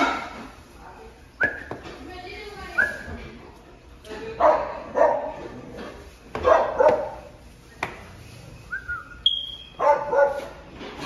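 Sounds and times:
dog barking: 4.4 - 5.4, 6.4 - 7.3, 9.8 - 10.6.

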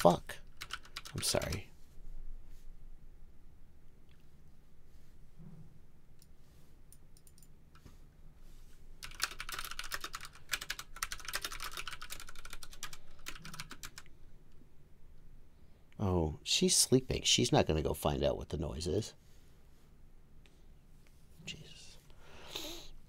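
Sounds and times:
rapid sharp clicks: 9.0 - 14.1.

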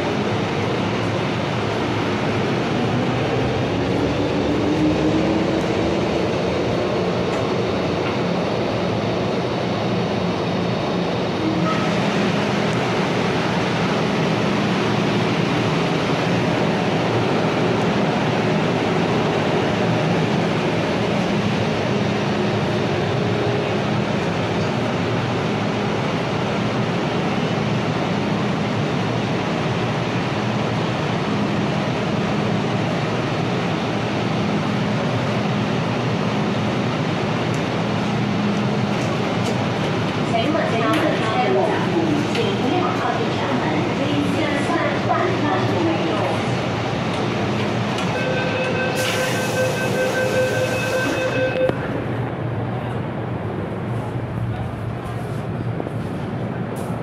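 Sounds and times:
train running rumble: 0.0 - 57.0
train traction motor whine: 47.1 - 52.2.

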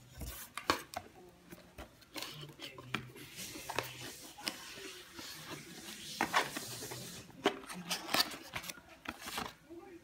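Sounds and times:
cardboard and paper rustling: 0.0 - 9.6.

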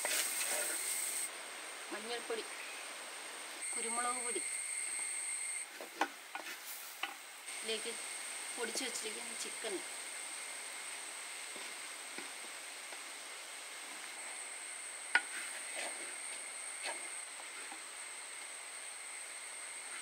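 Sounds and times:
faint sizzle: 0.0 - 20.0
insects chirring: 0.0 - 20.0
wooden spoon scraping clay pot: 15.2 - 17.9.

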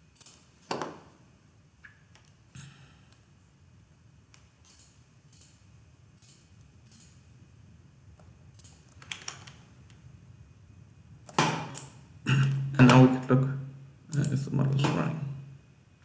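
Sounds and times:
computer mouse and keyboard clicks: 4.3 - 5.6, 8.5 - 10.0.

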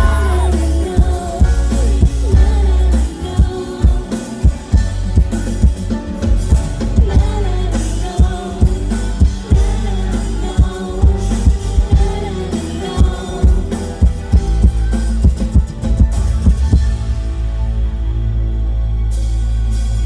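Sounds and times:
person singing: 0.0 - 5.0, 7.0 - 14.4
drum-kit beat: 0.0 - 17.1
pop-rock band playing: 0.0 - 20.0.

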